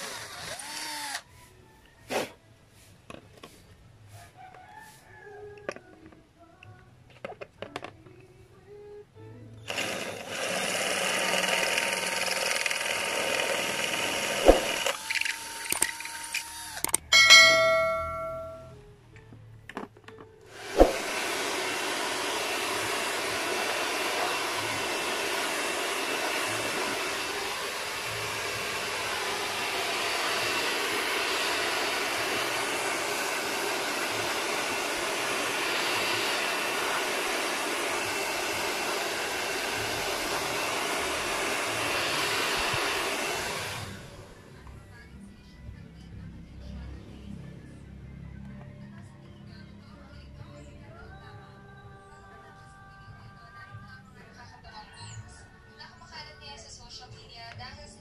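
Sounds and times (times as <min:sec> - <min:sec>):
hair dryer blowing: 0:00.0 - 0:01.2, 0:09.7 - 0:18.6, 0:20.5 - 0:44.5.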